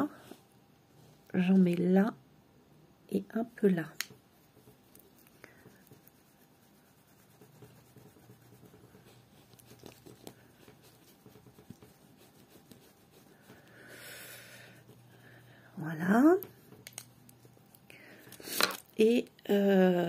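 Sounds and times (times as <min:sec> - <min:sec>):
makeup brush brushing skin: 0:03.4 - 0:18.6.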